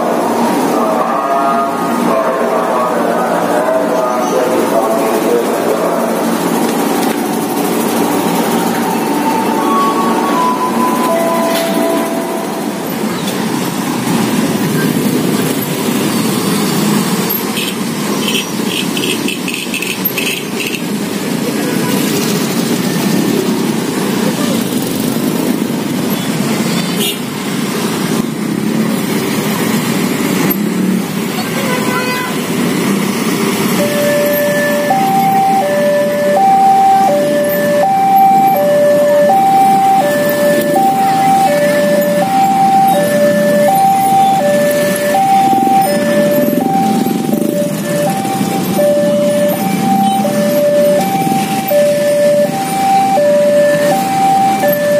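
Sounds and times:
motorbike and car engines rumbling: 0.0s - 54.9s
street traffic idling: 0.0s - 54.9s
level crossing two-tone alarm: 7.5s - 20.8s, 33.4s - 54.9s.

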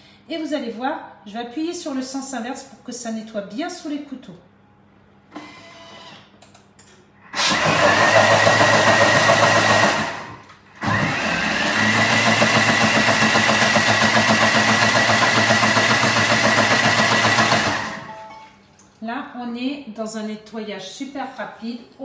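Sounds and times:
food processor churning with whine: 7.3s - 18.2s.

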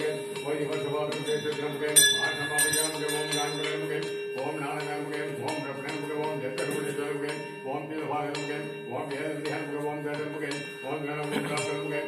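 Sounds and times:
bell ringing: 0.0s - 12.0s
devotional chanting: 0.0s - 12.0s.

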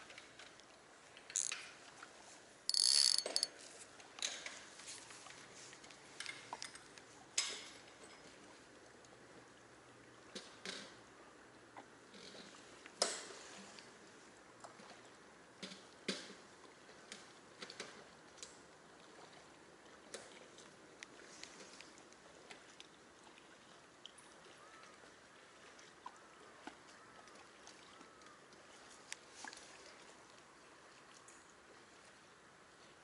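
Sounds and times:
faint outdoor background: 0.0s - 33.0s
fishing reel clicks and ticks: 1.3s - 1.6s, 2.7s - 3.5s.

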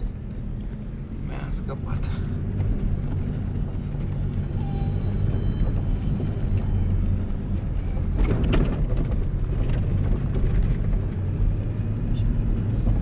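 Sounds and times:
engine droning inside cabin: 0.0s - 13.0s
knocks and rattles: 7.9s - 11.2s.

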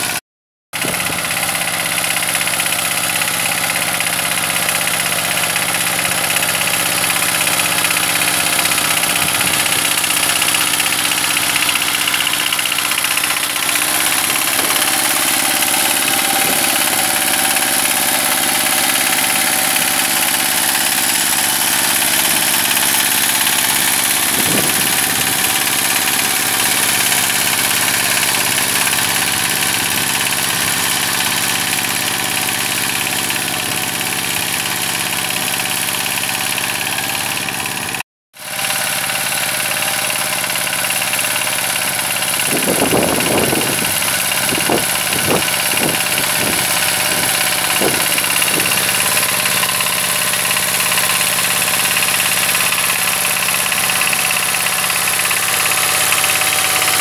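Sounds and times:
diesel engine running under load: 0.8s - 57.0s.

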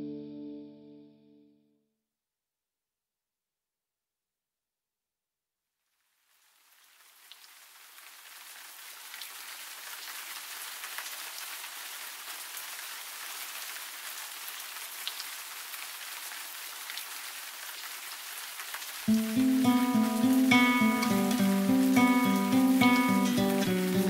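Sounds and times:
steady rain falling: 5.9s - 24.0s
drops ticking: 19.1s - 24.0s.

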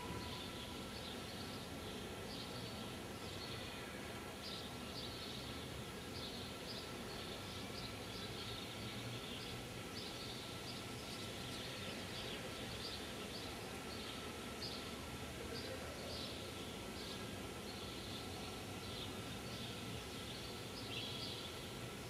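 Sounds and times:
background hiss and rumble: 0.0s - 22.0s.

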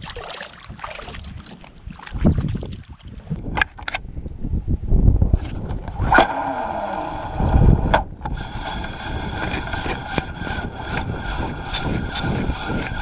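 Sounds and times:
fishing reel being cranked: 8.4s - 13.0s.

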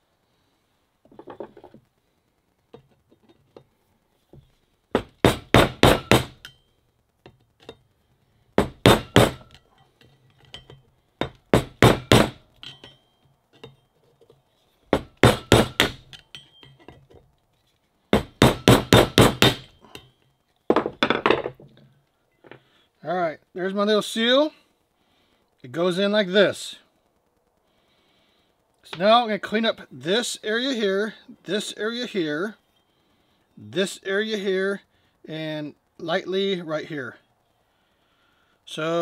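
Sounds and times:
hammer striking a screwdriver: 5.0s - 6.6s, 8.6s - 9.6s, 10.6s - 13.0s, 15.0s - 16.9s, 18.2s - 20.1s.

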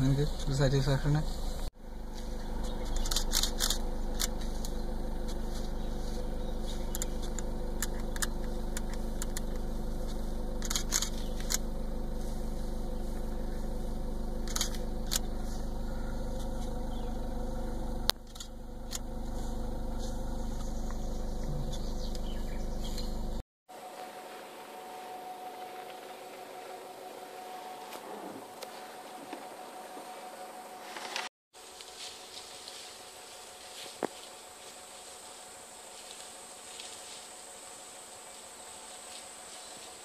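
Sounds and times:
car engine idling: 0.0s - 31.0s
camera shutter click: 2.9s - 4.3s, 14.4s - 15.2s.

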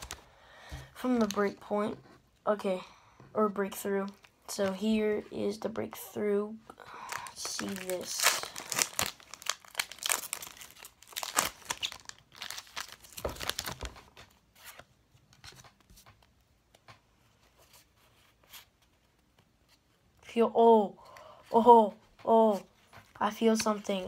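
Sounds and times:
foil wrapper tearing and crinkling: 7.1s - 14.0s.

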